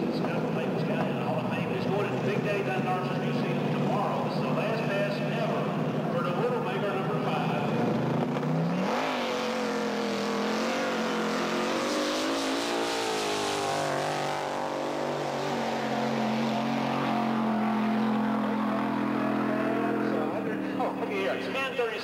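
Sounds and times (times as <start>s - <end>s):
drag motorcycle engine revving: 0.0s - 21.6s
rear tyre spinning: 7.3s - 21.0s.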